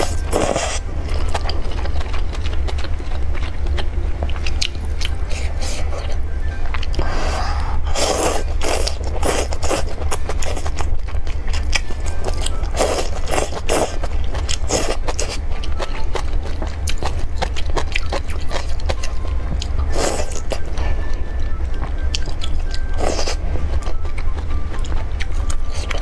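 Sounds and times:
steady low hum: 0.0 - 26.0
person slurping noodles: 7.0 - 9.8.

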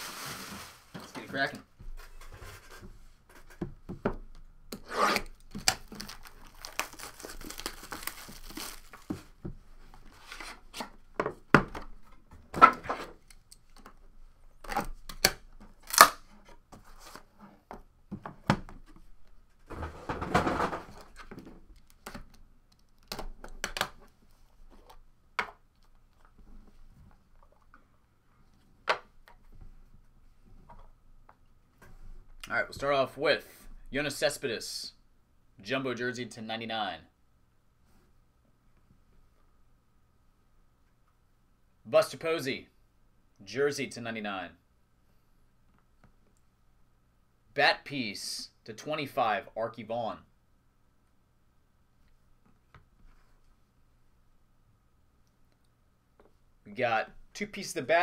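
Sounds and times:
plastic wrap tearing and crinkling: 0.0 - 1.0, 5.2 - 9.3
cards being handled: 5.5 - 9.3.

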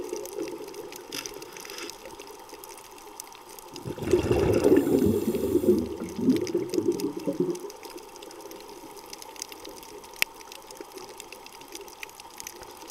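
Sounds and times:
faint crackling clicks: 0.0 - 12.9
underwater bubbling: 0.0 - 12.9.

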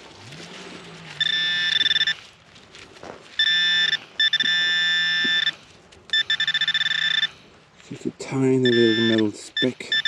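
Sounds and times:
metal detector buzzing tones: 1.2 - 2.2, 3.4 - 7.4, 8.6 - 9.2.

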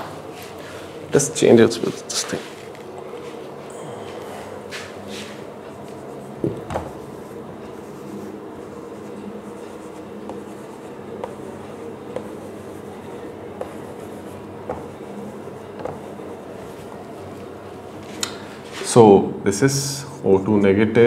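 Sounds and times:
steady low hum: 0.0 - 21.0
marker pen writing on whiteboard: 4.7 - 17.6.

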